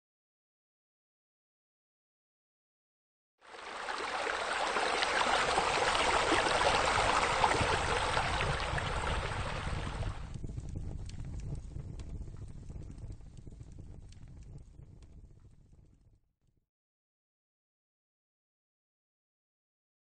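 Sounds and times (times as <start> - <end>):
running splashing water: 3.5 - 10.3.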